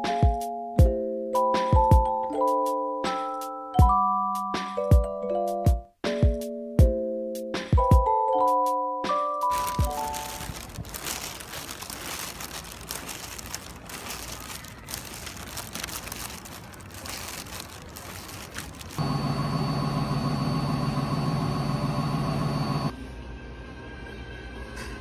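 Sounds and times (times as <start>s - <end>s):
plastic bag rustling: 9.5s - 19.0s
motor hum with high whine: 19.0s - 22.9s.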